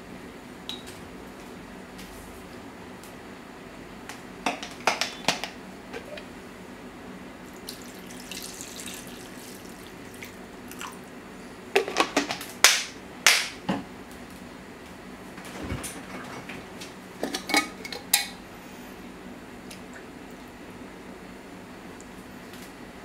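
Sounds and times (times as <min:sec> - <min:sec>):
water pouring from jug: 0:07.6 - 0:11.0.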